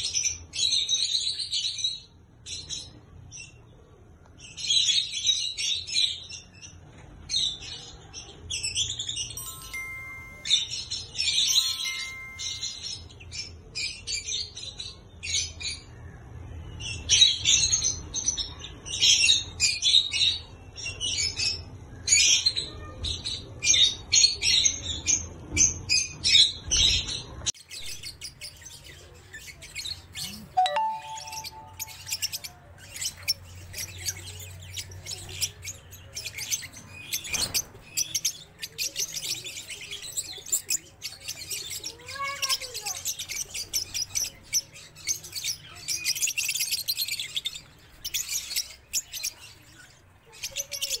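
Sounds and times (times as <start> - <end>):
lovebirds chirping: 8.7 - 13.6, 27.1 - 51.0.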